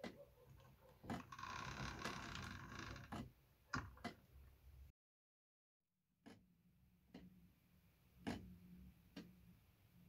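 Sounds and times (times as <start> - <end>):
pendulum clock tick: 7.1 - 7.3.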